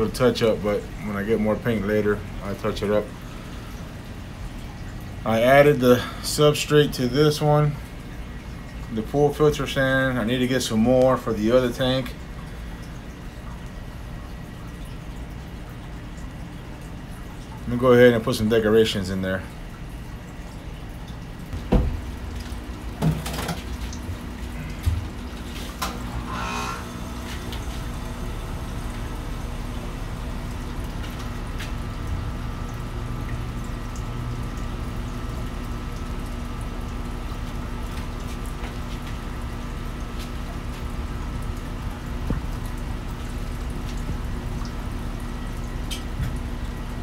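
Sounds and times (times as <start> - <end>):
water rushing into aquarium: 19.0 - 47.0
sharp knocks: 21.6 - 22.1.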